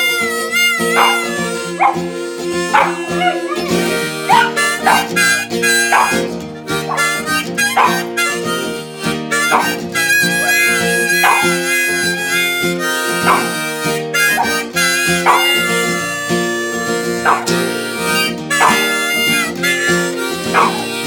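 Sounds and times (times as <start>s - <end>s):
harmonica chords: 0.0s - 21.0s
strummed acoustic guitar: 0.0s - 21.0s
small dog howling: 0.9s - 5.2s, 5.9s - 6.2s, 10.4s - 11.6s, 15.2s - 15.7s, 17.2s - 17.5s, 20.4s - 20.9s.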